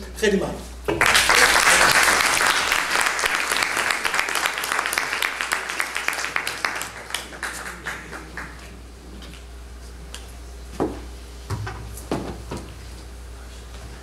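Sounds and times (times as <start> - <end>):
steady low hum: 0.0 - 14.0
applause: 1.0 - 8.8.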